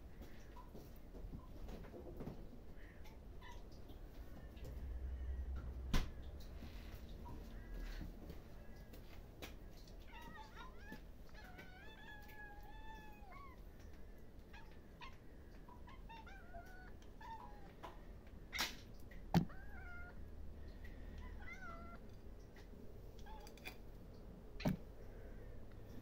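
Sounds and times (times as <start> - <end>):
kittens meowing: 10.0 - 13.6, 14.5 - 17.8, 19.4 - 20.3, 21.1 - 22.0.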